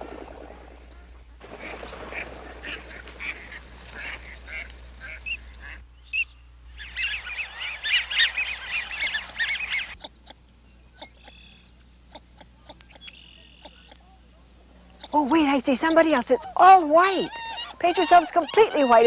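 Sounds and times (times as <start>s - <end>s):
geese honking: 0.8s - 19.0s
ducks quacking: 0.9s - 14.2s, 14.8s - 19.0s
chorus of high bird calls: 0.9s - 19.0s.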